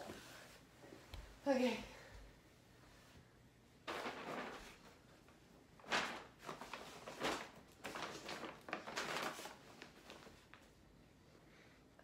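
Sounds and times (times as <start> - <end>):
paper bags rustling: 3.8 - 5.1, 5.8 - 10.8.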